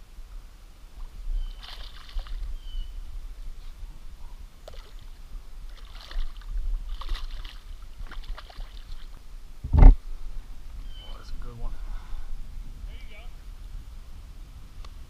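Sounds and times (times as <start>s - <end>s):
fish splashing at water surface: 1.5s - 2.5s, 4.6s - 9.2s.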